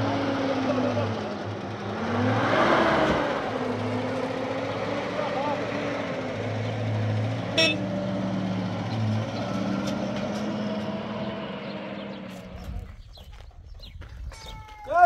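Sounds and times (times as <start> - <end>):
pickup truck engine pulling away: 0.0 - 13.2
horn toot: 7.5 - 7.9.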